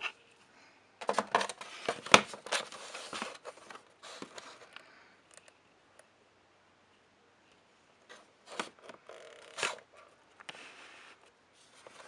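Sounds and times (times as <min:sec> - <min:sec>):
cardboard rustling and scraping: 0:01.0 - 0:04.7, 0:10.5 - 0:12.0.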